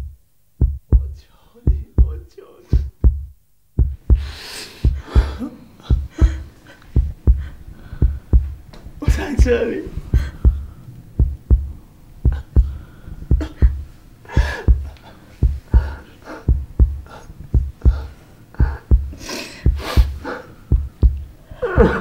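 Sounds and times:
slow heartbeat: 0.0s - 22.0s
woman breathing and sobbing: 3.9s - 8.7s, 9.9s - 22.0s.

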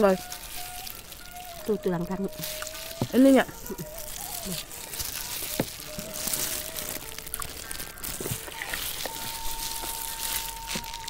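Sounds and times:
meat squelching off bone: 0.0s - 11.0s
plastic glove rustling: 0.0s - 11.0s
faint held tone: 8.6s - 11.0s.

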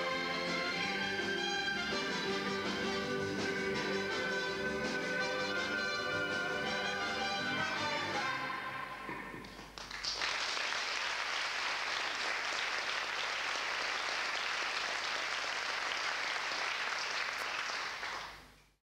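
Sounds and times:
audience applause: 9.0s - 18.4s.

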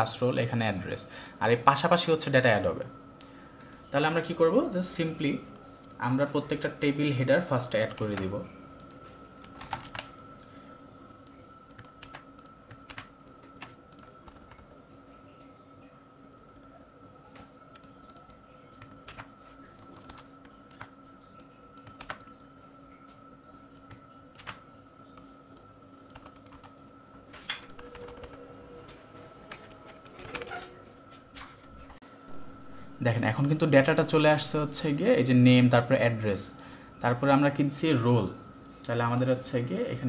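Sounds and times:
faint steady hum: 0.0s - 40.0s
computer keyboard typing: 7.4s - 10.2s, 11.2s - 14.8s, 16.4s - 22.5s, 23.1s - 26.8s, 27.5s - 28.5s, 29.4s - 30.8s.

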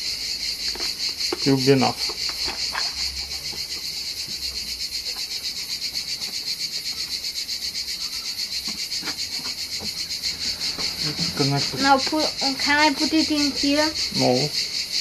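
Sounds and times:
insects chirping: 0.0s - 15.0s.

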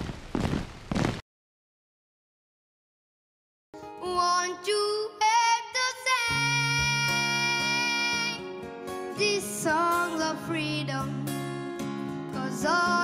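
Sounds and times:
child singing: 4.0s - 8.4s, 9.1s - 11.3s, 12.4s - 13.0s.

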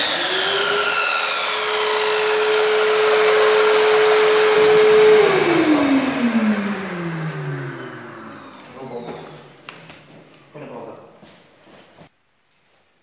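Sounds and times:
mitre saw running: 0.0s - 9.5s
vacuum running: 0.0s - 10.6s.

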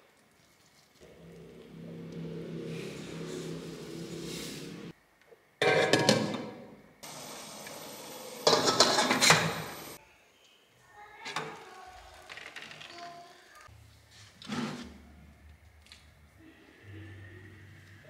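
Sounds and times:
metal pan clattering and scraping: 5.6s - 6.4s, 8.5s - 9.6s.

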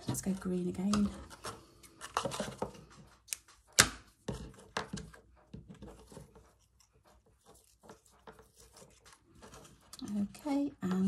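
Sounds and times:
ribbon rustling: 5.8s - 10.5s.

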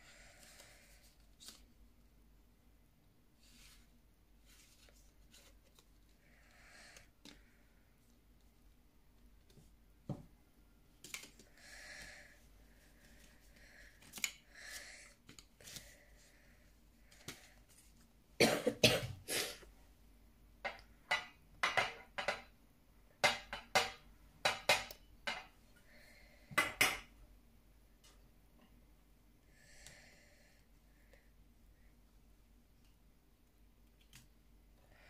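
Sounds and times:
person breathing: 0.0s - 1.6s, 6.1s - 8.0s, 11.2s - 18.0s, 25.6s - 26.8s, 29.4s - 32.0s, 34.7s - 35.0s.

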